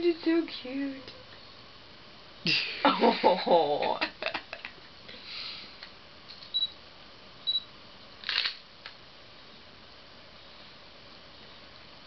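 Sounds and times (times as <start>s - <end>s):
camera electronic beeps: 6.5s - 6.8s, 7.5s - 7.7s
camera shutter: 8.2s - 8.6s.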